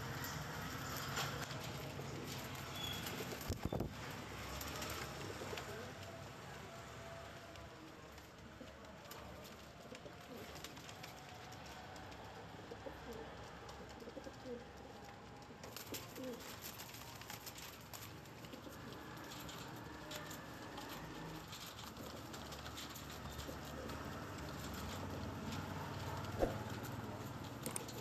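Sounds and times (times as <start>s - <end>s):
pigeons cooing: 4.4s - 6.1s, 12.6s - 17.6s, 18.3s - 28.0s.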